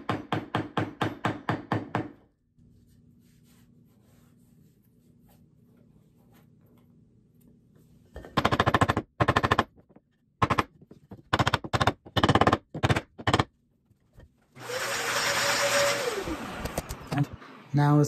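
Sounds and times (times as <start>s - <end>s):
hammer striking wood block: 0.0s - 2.3s, 8.3s - 13.5s
vacuum cleaner humming: 14.6s - 17.9s.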